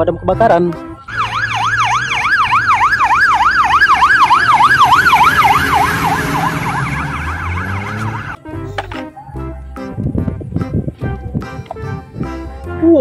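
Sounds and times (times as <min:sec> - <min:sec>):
diesel engine rumble: 0:00.8 - 0:12.6
fire engine siren yelping: 0:01.1 - 0:08.4.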